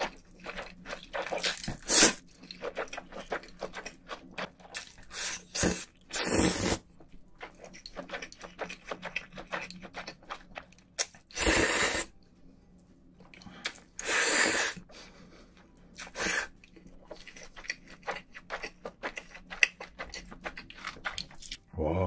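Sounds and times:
wet chewing: 0:00.0 - 0:11.3, 0:16.0 - 0:21.7
person slurping noodles: 0:05.1 - 0:06.8, 0:11.3 - 0:12.1, 0:14.0 - 0:14.8, 0:16.0 - 0:16.5.

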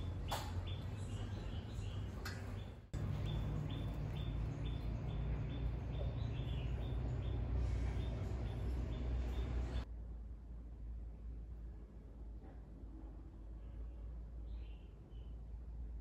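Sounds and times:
small bird chirping: 0:00.0 - 0:09.8
low steady hum: 0:00.0 - 0:16.0.

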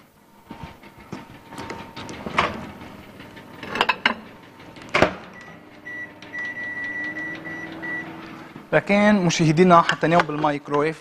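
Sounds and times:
microwave humming: 0:00.0 - 0:10.7
microwave beeps: 0:05.3 - 0:08.4.

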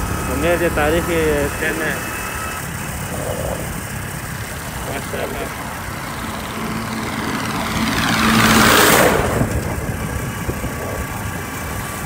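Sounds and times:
motorcycle engine: 0:00.0 - 0:12.0
tractors passing: 0:00.0 - 0:12.0
wind rush: 0:07.0 - 0:12.0.

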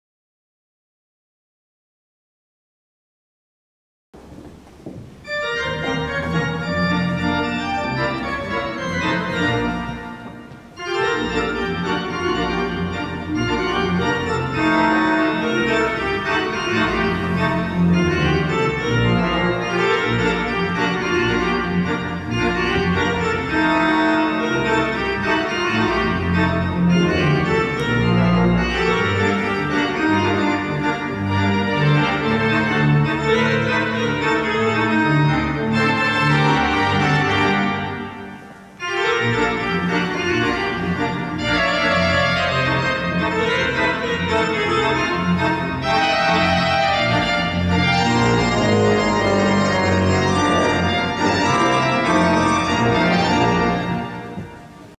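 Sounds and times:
pipe organ playing: 0:04.2 - 0:54.9.

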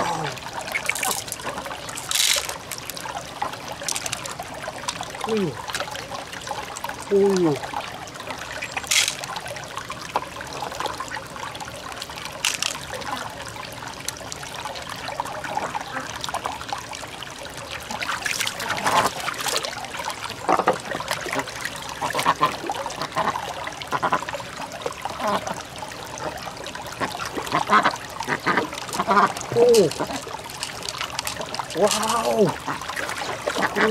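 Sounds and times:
water trickling: 0:00.0 - 0:33.9
shells clicking on rock: 0:00.8 - 0:03.0, 0:03.8 - 0:04.3, 0:08.9 - 0:09.3, 0:12.4 - 0:12.8, 0:29.8 - 0:32.2
shells knocking and scraping: 0:00.8 - 0:03.0, 0:03.8 - 0:04.3, 0:08.9 - 0:09.3, 0:12.4 - 0:12.8, 0:30.5 - 0:32.0.

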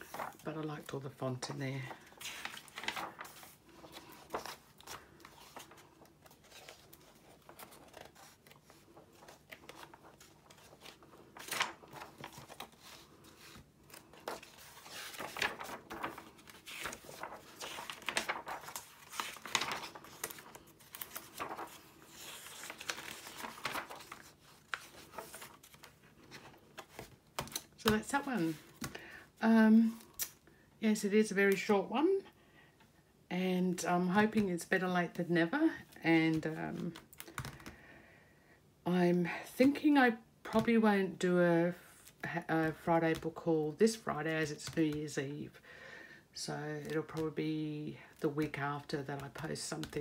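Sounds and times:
book pages turning: 0:00.0 - 0:29.1.

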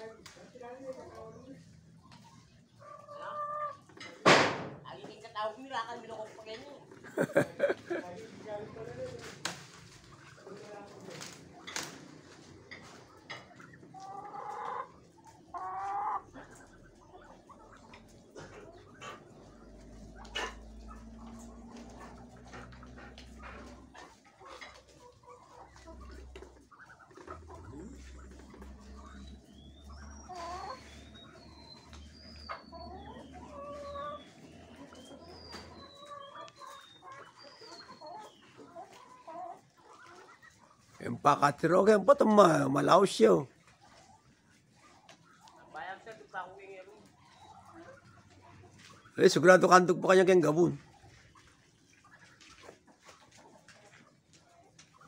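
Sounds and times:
chicken calling: 0:00.0 - 0:04.1, 0:05.0 - 0:55.0
sharp knock: 0:04.2 - 0:04.8.

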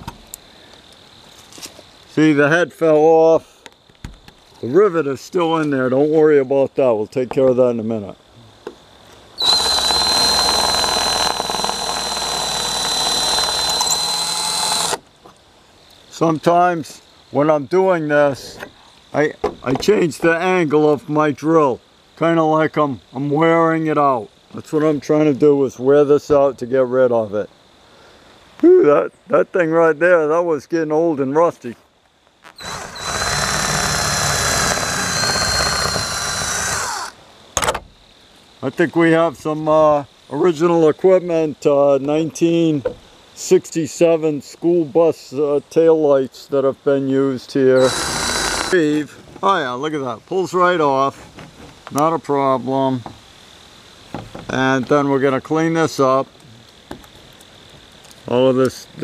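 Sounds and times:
drill grinding into metal: 0:09.4 - 0:15.0, 0:32.6 - 0:37.2, 0:47.8 - 0:48.8.

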